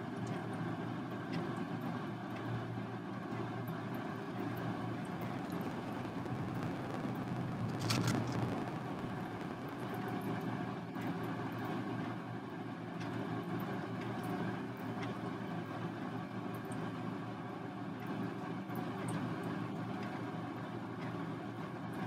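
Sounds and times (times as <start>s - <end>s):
mechanical background hum: 0.0s - 22.0s.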